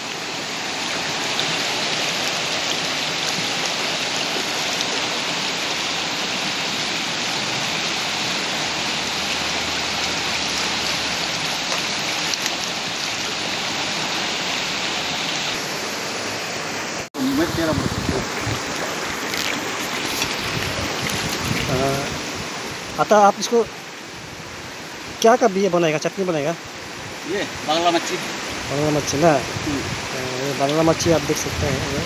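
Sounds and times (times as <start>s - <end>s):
river flowing over rocks: 0.0s - 32.0s.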